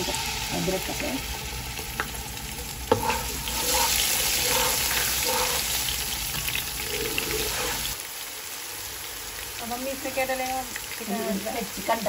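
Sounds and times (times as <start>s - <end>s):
paste sizzling in hot oil: 0.0s - 12.0s
spatula stirring: 2.8s - 8.0s.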